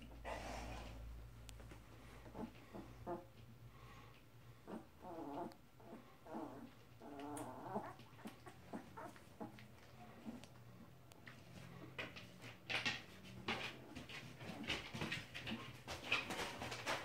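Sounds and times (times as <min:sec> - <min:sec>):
puppies whimpering: 0:04.7 - 0:10.5
puppies scuffling on bedding: 0:11.2 - 0:17.0.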